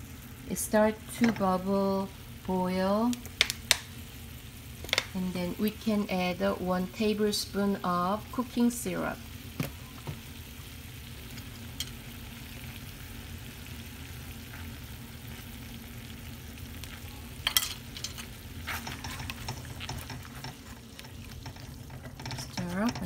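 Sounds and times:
sauce bubbling and sizzling: 0.0 - 23.0
spatula scraping pan: 17.6 - 23.0.

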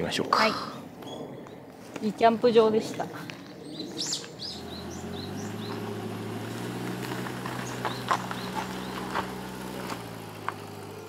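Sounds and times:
birds chirping: 0.2 - 11.0
van engine idling: 4.4 - 11.0.

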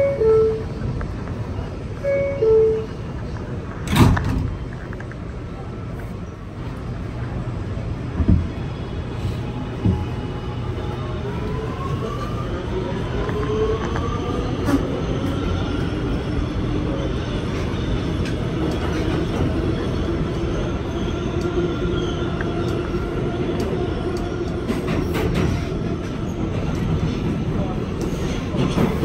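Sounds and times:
train wheels rumbling on rail: 0.0 - 29.0.

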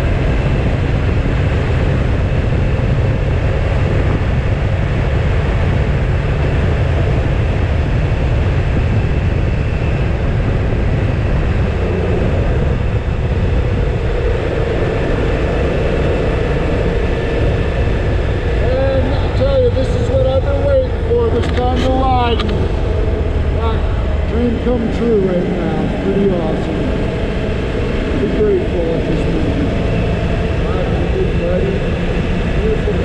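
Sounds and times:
motorcycle engine running: 0.0 - 33.0
wind rushing over microphone: 0.0 - 33.0.

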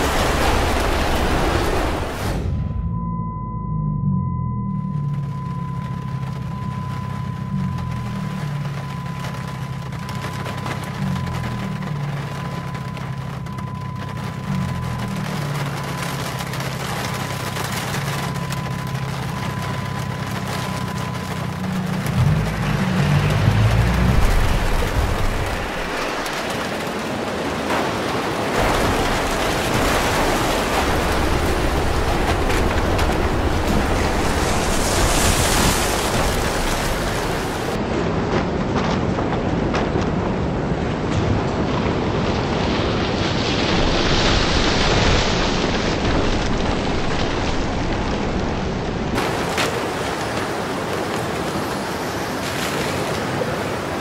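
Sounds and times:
heavy rain lashing a car: 0.0 - 2.6, 4.6 - 54.0
wind buffeting rumble: 28.6 - 52.4.

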